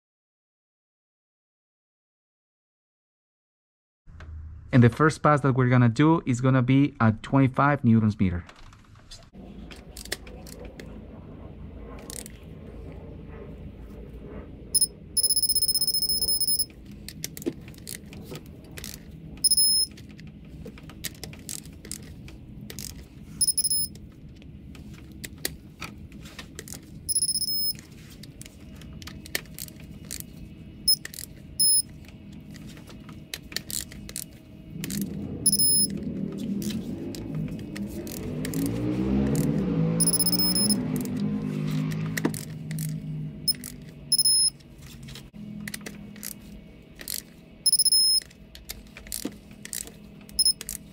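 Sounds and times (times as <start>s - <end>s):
torque wrench beeping: 14.8s - 16.7s, 19.4s - 19.9s, 23.4s - 23.9s, 27.1s - 27.8s, 30.9s - 31.9s, 35.4s - 35.9s, 40.0s - 40.8s, 43.5s - 44.6s, 47.6s - 48.3s, 50.4s - 50.7s
wrench ratchet clicking: 27.1s - 27.7s, 42.4s - 44.5s.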